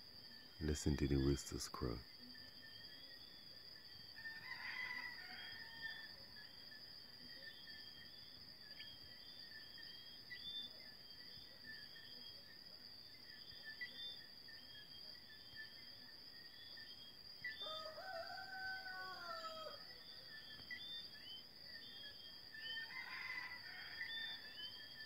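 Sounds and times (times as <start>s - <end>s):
faint rooster crow: 4.0s - 6.6s, 17.4s - 20.8s, 22.5s - 25.0s.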